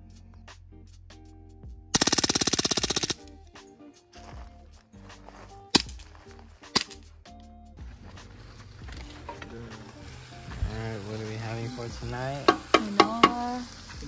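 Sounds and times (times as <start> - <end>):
background music: 0.0 - 14.0
fast rattling burst: 2.0 - 3.2
handgun shots: 5.8 - 6.0, 6.7 - 7.0.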